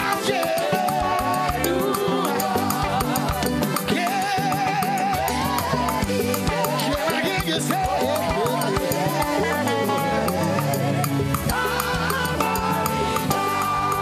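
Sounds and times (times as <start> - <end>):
band with dance beat: 0.0 - 14.0
group singing gospel chorus: 0.0 - 14.0.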